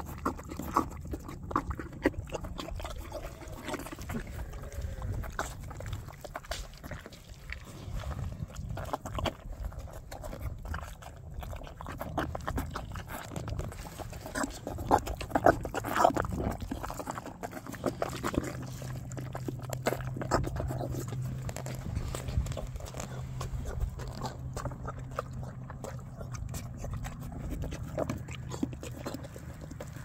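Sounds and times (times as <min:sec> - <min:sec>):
horse slurping and chewing mash: 0:00.0 - 0:30.0.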